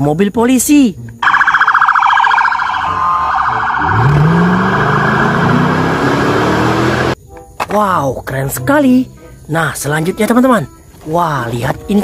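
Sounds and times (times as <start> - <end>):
police siren warbling: 1.2 - 7.2
car engine revving: 3.6 - 7.2.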